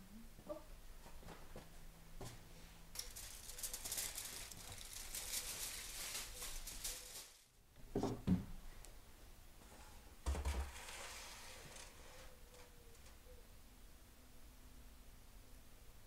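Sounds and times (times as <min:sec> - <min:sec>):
aluminium foil crinkling: 0:02.9 - 0:07.6.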